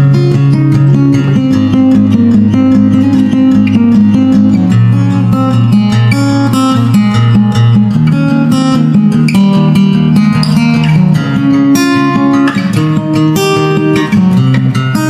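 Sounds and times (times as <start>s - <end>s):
acoustic guitar music: 0.0s - 15.0s.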